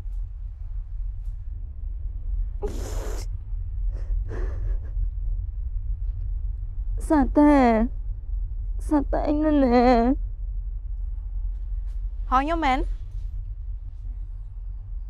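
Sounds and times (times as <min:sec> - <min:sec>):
steady low rumble: 0:00.0 - 0:15.0
person gasping: 0:02.6 - 0:03.2.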